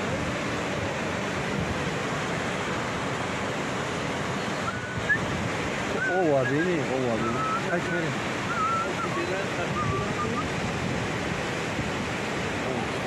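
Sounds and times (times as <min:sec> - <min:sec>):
river rapids rushing: 0:00.0 - 0:13.0.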